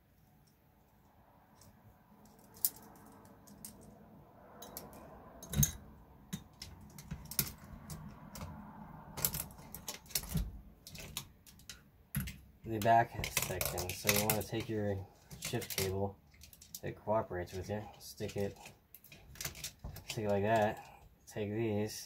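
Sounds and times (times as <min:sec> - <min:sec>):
clicks of small plastic parts: 0:09.2 - 0:14.7.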